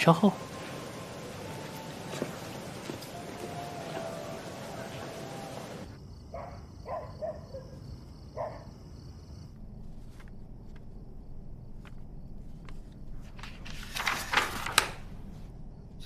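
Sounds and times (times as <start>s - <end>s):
crickets chirping: 0.0s - 13.9s, 15.0s - 16.0s
paper rustling: 9.8s - 10.9s, 11.7s - 15.5s.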